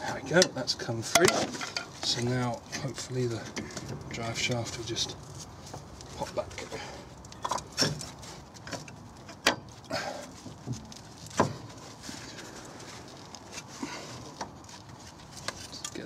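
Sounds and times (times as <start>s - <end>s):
metallic suspension knocks and clunks: 0.0s - 1.9s, 7.3s - 9.8s.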